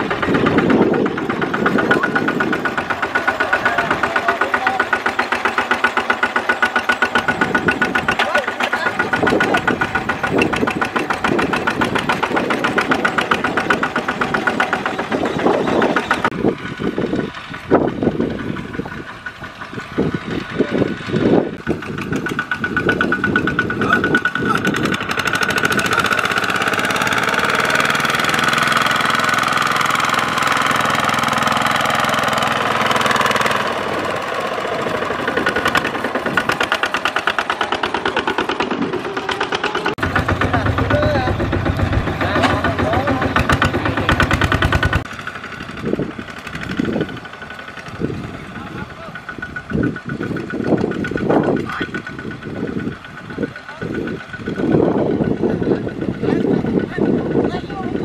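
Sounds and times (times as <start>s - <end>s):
diesel engine chugging: 0.0s - 58.0s.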